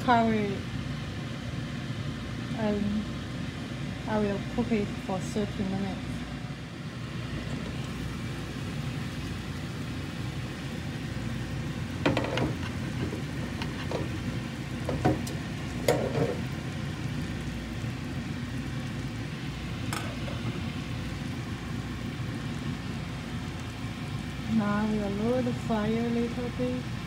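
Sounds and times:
soup boiling and bubbling: 6.1s - 27.0s.

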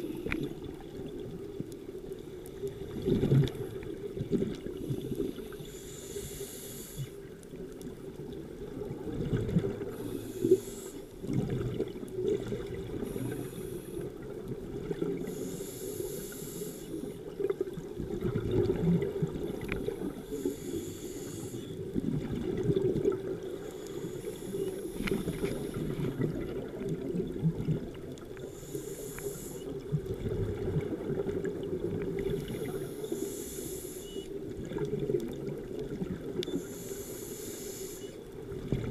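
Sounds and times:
exhaled bubbles gurgling: 0.0s - 5.6s, 7.6s - 16.4s, 17.1s - 36.9s, 38.2s - 38.9s
scuba regulator hissing inhale: 4.8s - 7.3s, 9.8s - 11.2s, 12.5s - 14.2s, 15.2s - 17.2s, 19.8s - 21.9s, 23.5s - 26.2s, 28.4s - 29.9s, 32.4s - 34.4s, 36.5s - 38.3s.

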